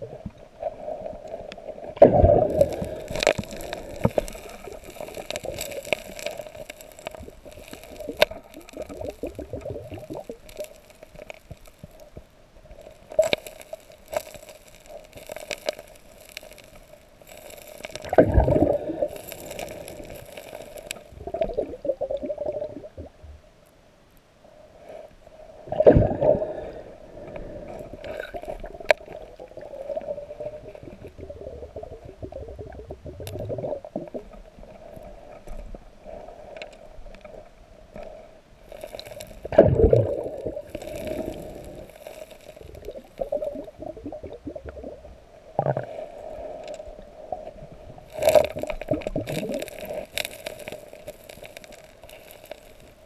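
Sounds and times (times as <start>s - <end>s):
underwater river gurgling: 0.0s - 13.7s, 15.1s - 23.2s, 24.6s - 52.2s
stones knocking and scraping: 2.4s - 12.1s, 12.9s - 21.1s, 38.7s - 43.6s, 48.1s - 53.0s.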